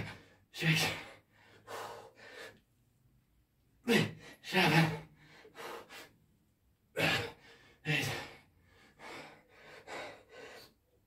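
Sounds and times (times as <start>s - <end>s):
man gasping for breath: 7.0s - 10.9s.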